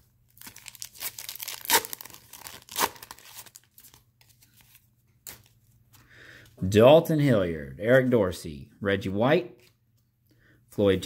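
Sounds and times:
paper wrapper crinkling: 0.3s - 5.6s
paper ripping: 0.4s - 4.0s.

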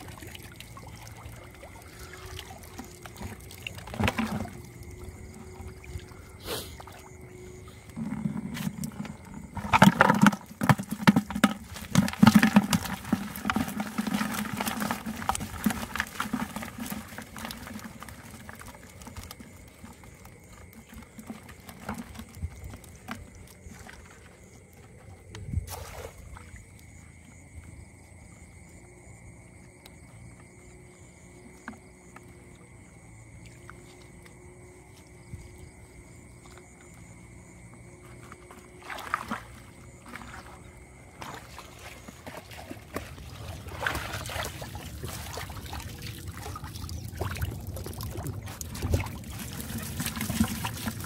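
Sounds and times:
fish flapping and splashing: 0.0s - 26.4s, 38.4s - 51.0s.

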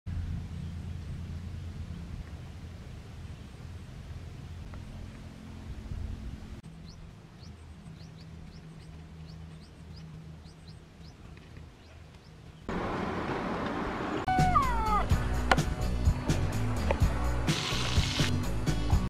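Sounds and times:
low rumble: 0.1s - 11.2s
music with falling tones: 14.3s - 19.0s.

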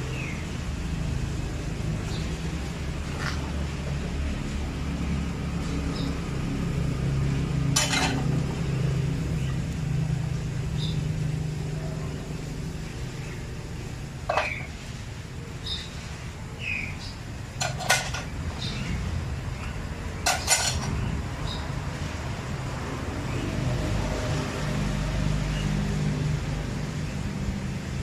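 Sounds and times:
crockery clinks: 20.3s - 20.9s.

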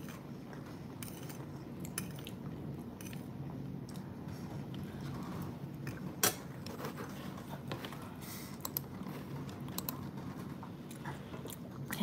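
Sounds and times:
low steady hum: 0.0s - 12.0s
quiet chewing: 6.6s - 12.0s.

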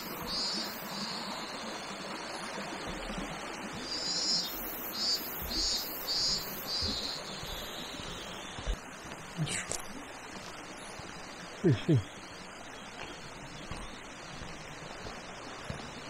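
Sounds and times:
stream water flowing: 0.0s - 16.0s
high chirping pulses: 3.8s - 8.7s.

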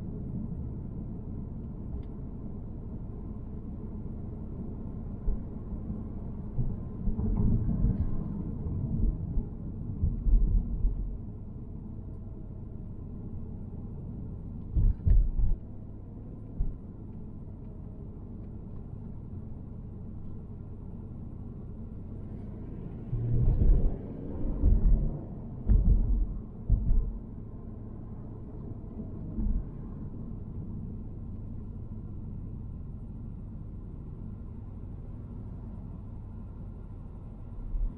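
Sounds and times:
road rumble: 0.0s - 37.9s
low thumps: 23.4s - 27.3s.

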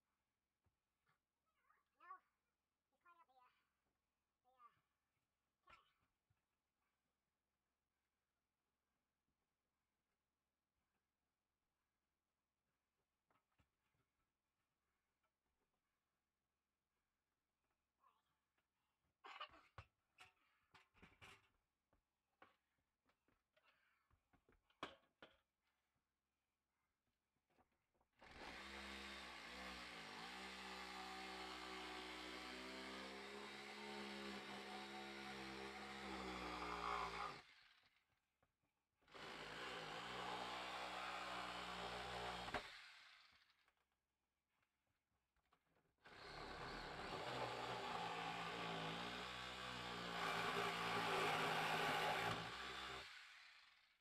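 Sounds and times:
reciprocating saw cutting: 28.2s - 37.8s, 39.2s - 43.3s, 46.1s - 53.8s
power tool motor whine: 46.1s - 53.7s.

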